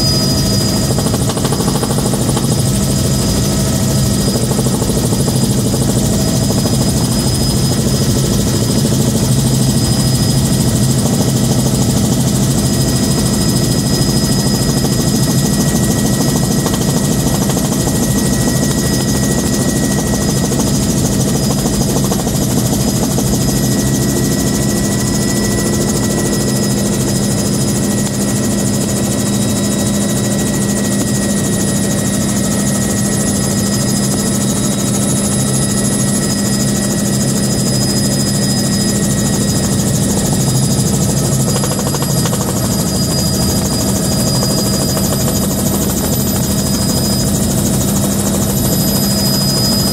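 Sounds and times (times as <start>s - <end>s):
helicopter rotor beat: 0.0s - 49.9s
high turbine whine: 0.0s - 49.9s.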